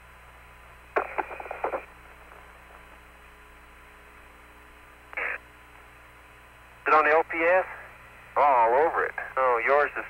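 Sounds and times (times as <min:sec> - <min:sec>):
radio hum and hiss: 0:00.0 - 0:10.0
radio crackling bursts: 0:00.9 - 0:03.0, 0:05.1 - 0:05.5.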